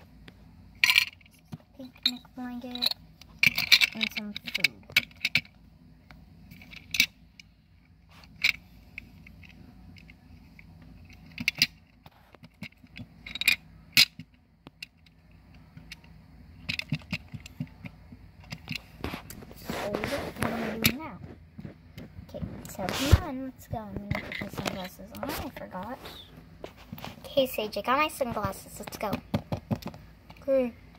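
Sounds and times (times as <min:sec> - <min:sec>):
plastic toys clicking together: 0:02.7 - 0:05.5, 0:15.8 - 0:18.8.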